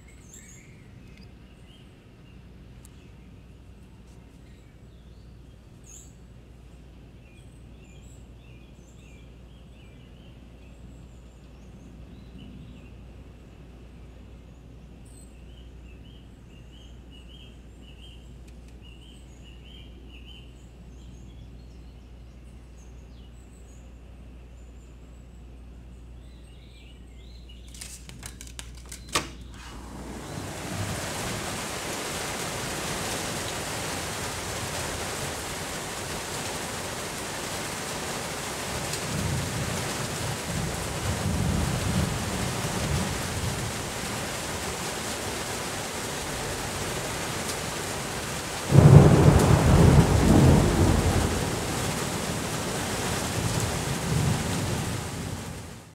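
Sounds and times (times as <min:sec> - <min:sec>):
thunder rolling: 0:29.6 - 0:36.8, 0:48.5 - 0:55.7
heavy rain: 0:29.6 - 0:55.9
loud thunderclap: 0:48.6 - 0:55.6.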